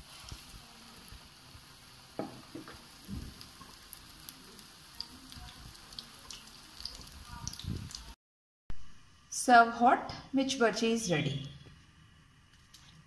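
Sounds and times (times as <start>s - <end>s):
deep-frying sizzle in oil: 0.0s - 8.2s.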